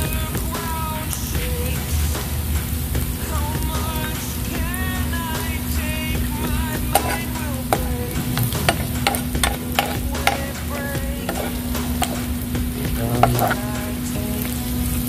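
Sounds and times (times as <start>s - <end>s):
food sizzling in a pan: 0.0s - 15.0s
metal spoon clinking on pan: 6.9s - 7.3s, 8.7s - 10.6s.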